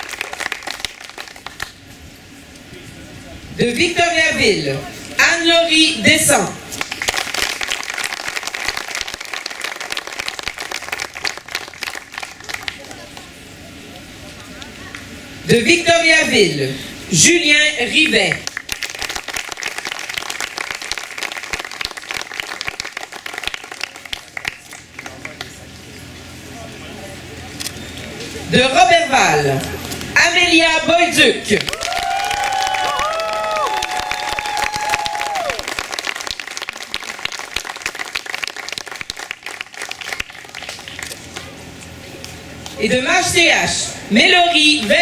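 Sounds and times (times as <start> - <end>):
crowd cheering: 0.0 - 1.4, 31.7 - 40.4
crowd clapping: 0.0 - 1.8, 6.7 - 13.3, 18.3 - 25.6, 31.6 - 41.5.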